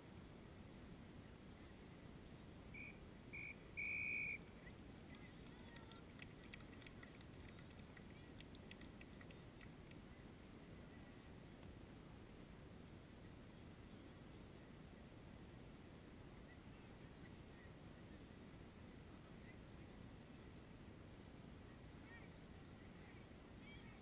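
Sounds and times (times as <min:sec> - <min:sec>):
faint wind: 0:00.0 - 0:24.0
distant referee's whistle: 0:02.8 - 0:04.4.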